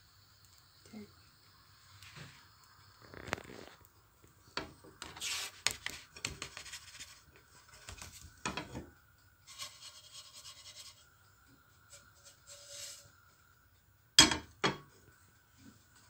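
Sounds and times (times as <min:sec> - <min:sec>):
pancake scraping off frying pan: 0:05.0 - 0:08.6, 0:09.4 - 0:11.1, 0:11.9 - 0:13.2.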